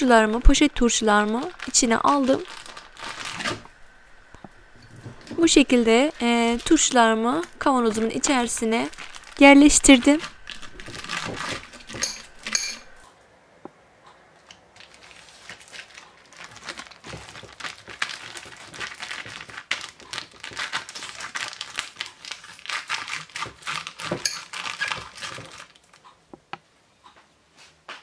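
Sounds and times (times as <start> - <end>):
plastic bags crinkling: 0.0 - 13.0, 14.7 - 26.0.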